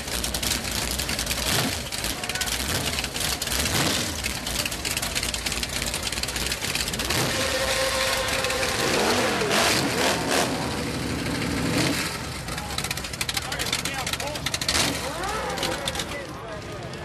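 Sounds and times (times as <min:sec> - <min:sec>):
motorcycle engine idling: 0:00.0 - 0:09.5, 0:10.5 - 0:16.2.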